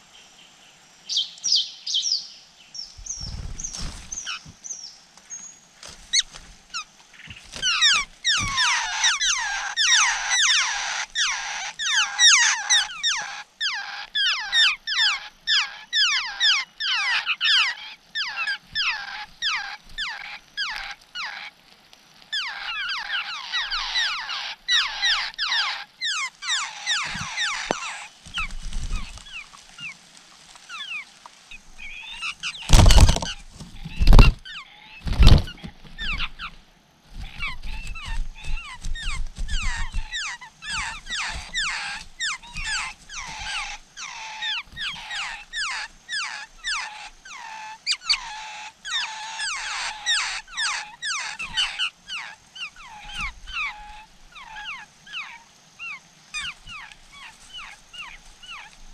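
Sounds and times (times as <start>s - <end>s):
nestlings chirping: 2.8s - 21.5s, 22.3s - 58.9s
loud thumps: 32.7s - 33.4s.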